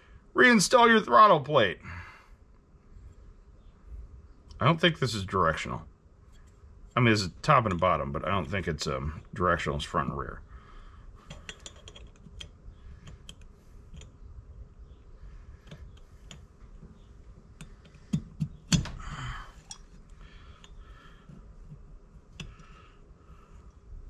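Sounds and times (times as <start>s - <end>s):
small metal parts clicking: 11.3s - 14.2s.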